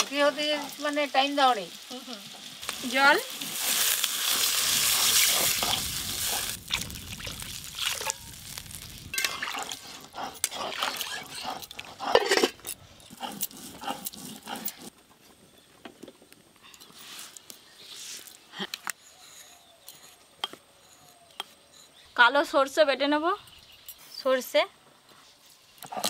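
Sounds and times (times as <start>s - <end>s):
oil sizzling in a wok: 0.0s - 10.0s
water poured into a hot wok: 2.6s - 9.8s.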